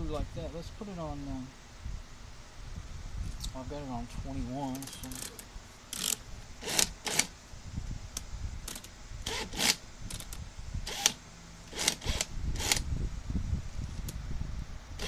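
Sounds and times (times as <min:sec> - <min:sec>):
power drill whirring: 0:05.9 - 0:07.3, 0:08.7 - 0:10.3, 0:10.9 - 0:12.8.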